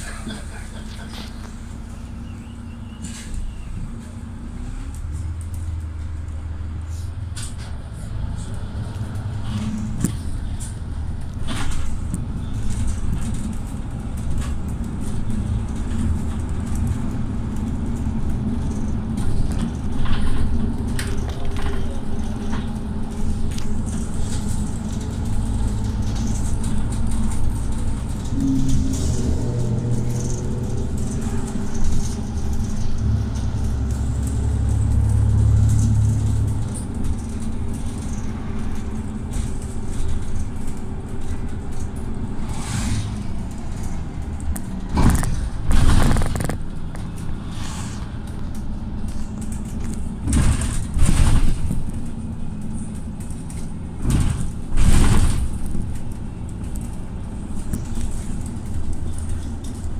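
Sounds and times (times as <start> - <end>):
bus engine drone: 0.0 - 59.9
road rumble: 0.0 - 59.9
knocks and rattles: 43.5 - 47.3, 48.3 - 59.9.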